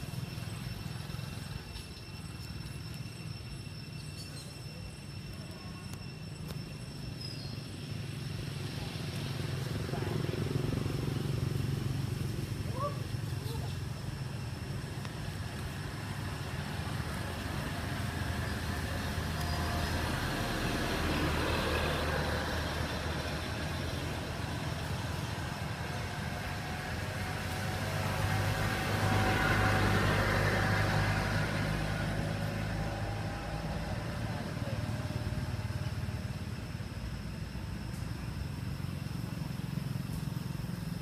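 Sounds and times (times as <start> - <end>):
traffic engine rumble: 0.0 - 41.0.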